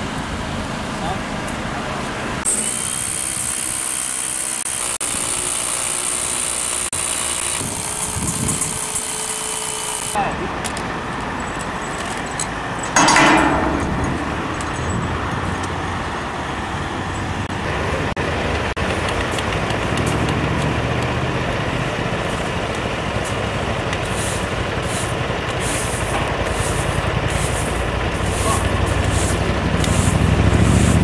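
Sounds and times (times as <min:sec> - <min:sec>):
heavy engine running: 0:00.0 - 0:31.0.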